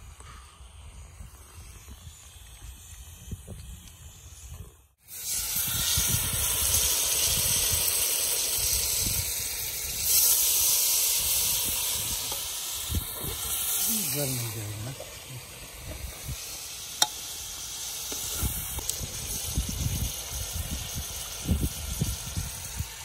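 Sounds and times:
chicken sizzling in hot oil: 0:05.0 - 0:23.0.

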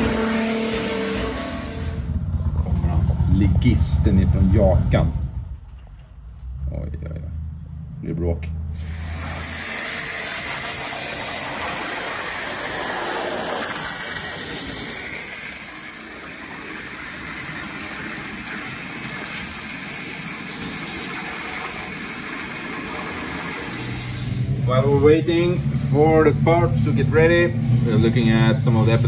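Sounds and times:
waterjet cutting hiss: 0:08.8 - 0:24.6.

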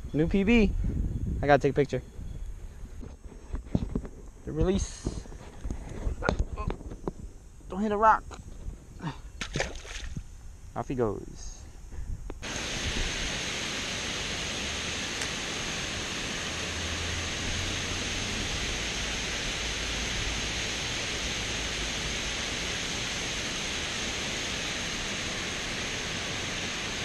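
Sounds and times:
water rushing over dam spillway: 0:12.4 - 0:27.0.

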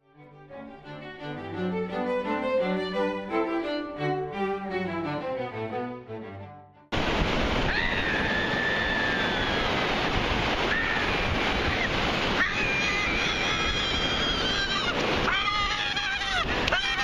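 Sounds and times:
surf breaking on beach: 0:06.9 - 0:17.0
wind buffeting microphone: 0:07.0 - 0:16.8
high voice crying out: 0:12.4 - 0:17.0.

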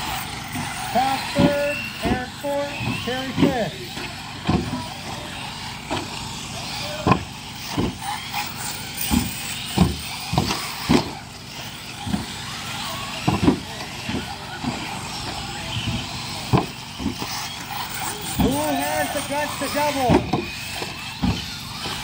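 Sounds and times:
model car motors whining: 0:00.0 - 0:22.0
short thumps: 0:07.0 - 0:08.0, 0:15.8 - 0:17.3.

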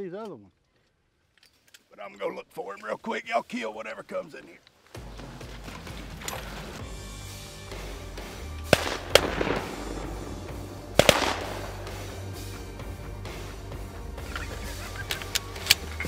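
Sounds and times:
background music: 0:04.8 - 0:16.0
shotgun shots with echo: 0:08.7 - 0:12.4.

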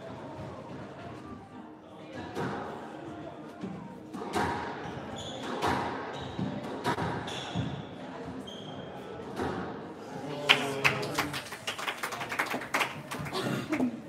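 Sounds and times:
squash ball hitting rackets and walls: 0:04.2 - 0:07.9
shoe squeaks on hardwood floor: 0:04.8 - 0:06.6, 0:07.2 - 0:09.1.

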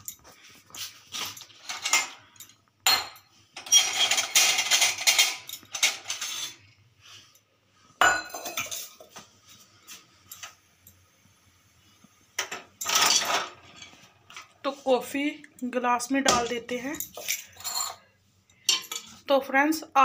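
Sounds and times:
metal utensils clinking in dish rack: 0:01.1 - 0:06.6, 0:08.0 - 0:09.0, 0:12.4 - 0:14.0, 0:16.3 - 0:18.0, 0:18.6 - 0:19.2.

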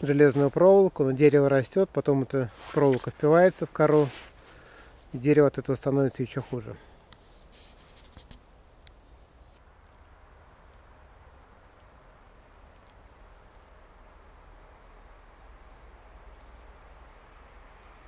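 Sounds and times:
faint steady hiss: 0:00.0 - 0:18.0
small birds chirping: 0:08.8 - 0:17.6.

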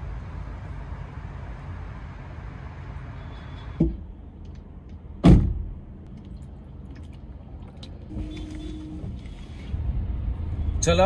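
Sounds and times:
traffic hum: 0:00.0 - 0:11.0
car door slammed shut: 0:05.2 - 0:05.7.

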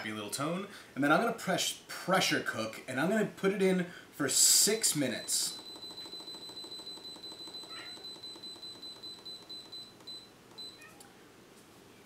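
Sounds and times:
pressure cooker beeping rapidly: 0:05.1 - 0:10.2.

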